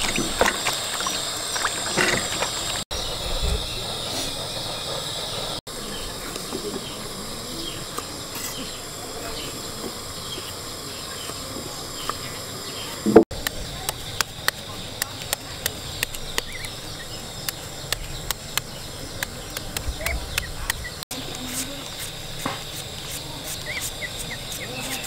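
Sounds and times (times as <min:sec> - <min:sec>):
water sloshing and splashing: 0:00.0 - 0:02.8
high insect hiss: 0:00.0 - 0:25.0.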